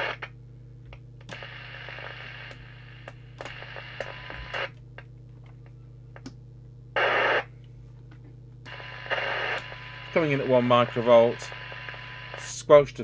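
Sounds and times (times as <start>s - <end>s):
radio receiver hiss: 0.0s - 0.2s, 8.7s - 12.8s
steady low hum: 0.0s - 13.0s.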